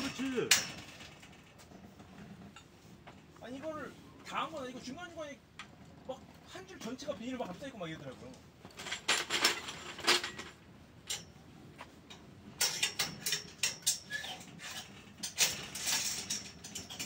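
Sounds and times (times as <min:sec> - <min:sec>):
metallic clicks on steel pipes: 0:11.0 - 0:11.4, 0:12.1 - 0:17.0.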